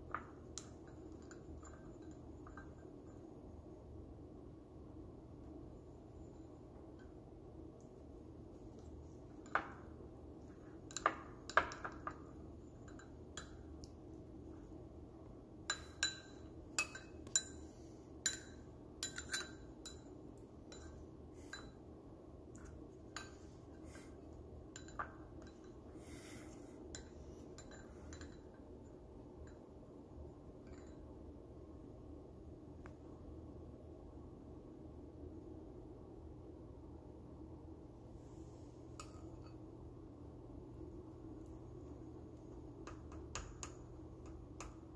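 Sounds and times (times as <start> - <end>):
fork clinking on ceramic bowl: 10.9 - 13.7, 15.7 - 21.8.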